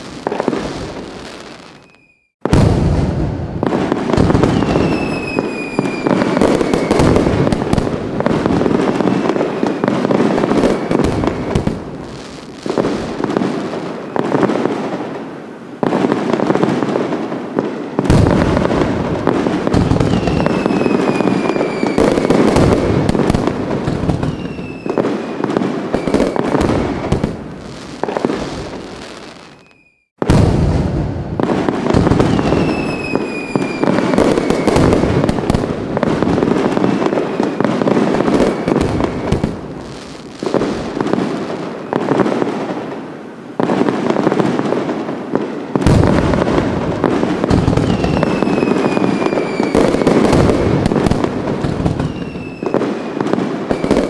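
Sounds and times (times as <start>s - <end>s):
falling firework whistles: 0.0s - 14.9s, 17.6s - 42.6s, 45.4s - 54.0s
fireworks bangs and crackling: 0.0s - 54.0s.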